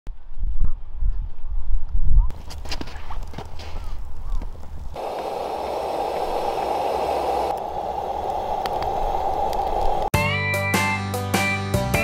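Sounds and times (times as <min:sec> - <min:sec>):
fire crackles: 0:04.6 - 0:10.1
wood fire hissing: 0:05.0 - 0:10.1.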